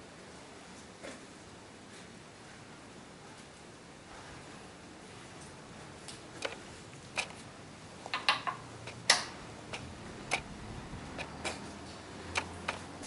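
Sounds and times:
light clicks and taps: 11.2 - 13.0.

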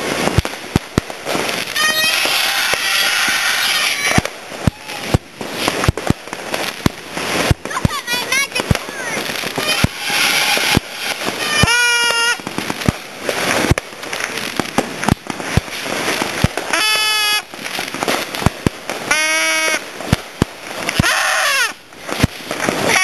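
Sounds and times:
fireworks bangs and crackles: 0.0 - 23.0
short high-pitched wails: 1.7 - 5.2, 9.5 - 12.4.

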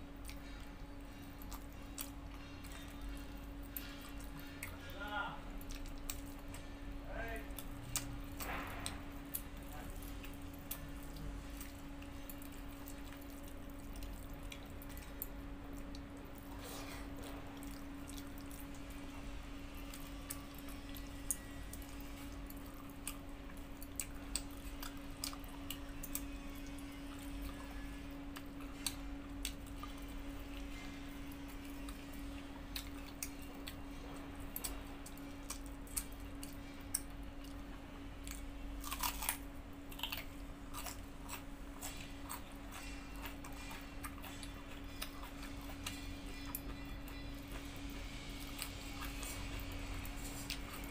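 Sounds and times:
chewing: 0.1 - 50.9
crunch of biting raw onion: 38.3 - 46.4.

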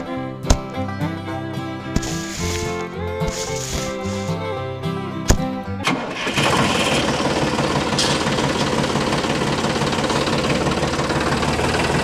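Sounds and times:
tractor engine knocking chug: 5.8 - 12.0.

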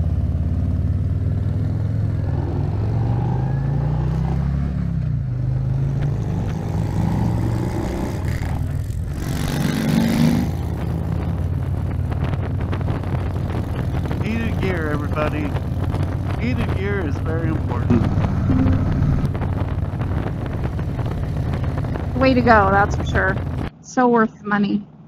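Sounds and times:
motorcycle engine accelerating: 0.0 - 23.7
wind noise: 2.2 - 23.7.

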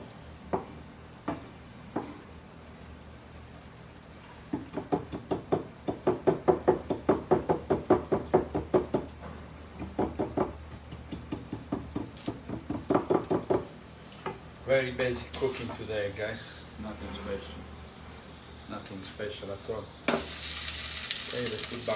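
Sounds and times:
knife chopping on wooden board: 9.8 - 13.6.

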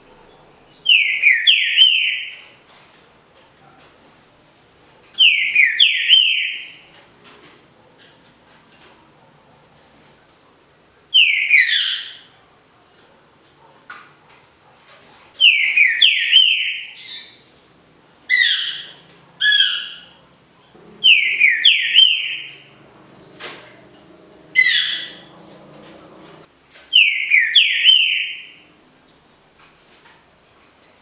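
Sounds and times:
bird singing whistled phrases: 0.9 - 2.3, 21.0 - 22.6, 27.0 - 28.5.

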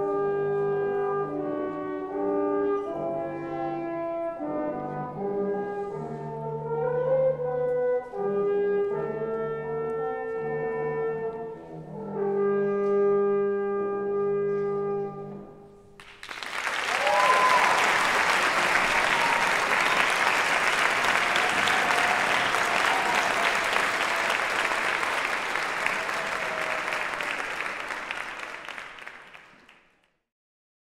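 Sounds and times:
brass trio holding a chord: 0.0 - 15.6
audience applause: 16.0 - 30.0.

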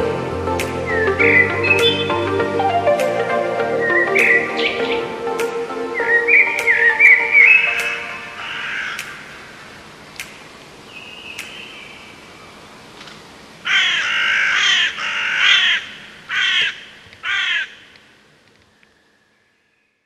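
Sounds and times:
crow cawing: 8.4 - 9.7, 13.7 - 17.9.

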